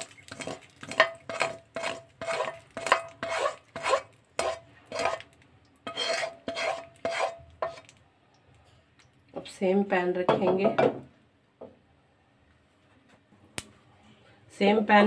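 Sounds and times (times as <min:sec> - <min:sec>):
spatula scraping a wok: 0:00.0 - 0:07.9.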